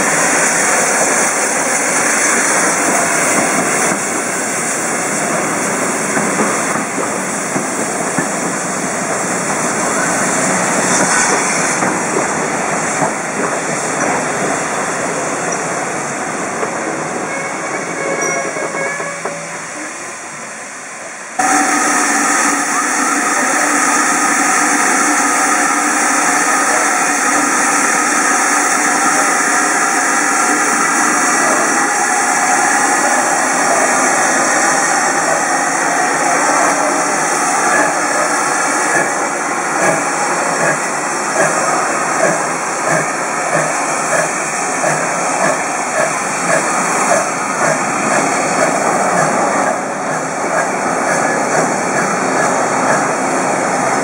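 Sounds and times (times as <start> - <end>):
steam hissing: 0.0 - 17.2, 21.4 - 54.0
steam locomotive exhaust beats: 0.0 - 19.8, 21.4 - 54.0.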